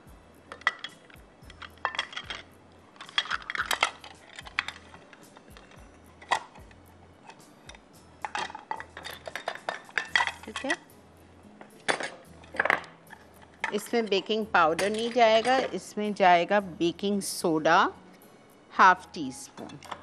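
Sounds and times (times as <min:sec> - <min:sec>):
utensils clinking against mixing bowl: 0:08.2 - 0:10.8, 0:11.8 - 0:15.9, 0:19.5 - 0:20.0.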